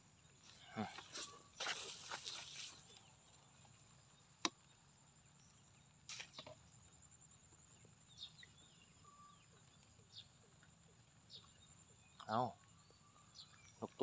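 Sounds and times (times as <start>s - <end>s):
short rustle: 0.8s - 3.1s
faint high chirps: 7.8s - 10.3s.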